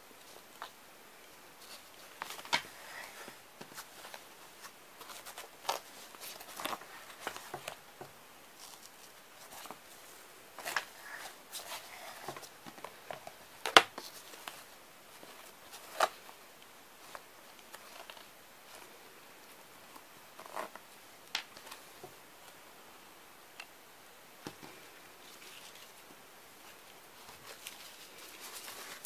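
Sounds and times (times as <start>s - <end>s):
fabric bag rustling: 26.6s - 29.0s.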